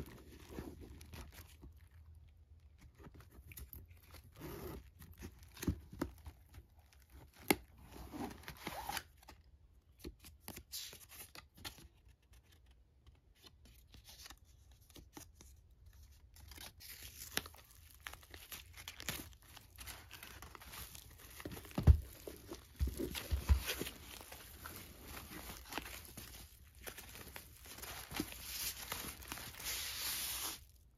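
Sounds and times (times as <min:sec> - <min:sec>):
plastic wrap and paper crinkling: 0:15.6 - 0:30.9.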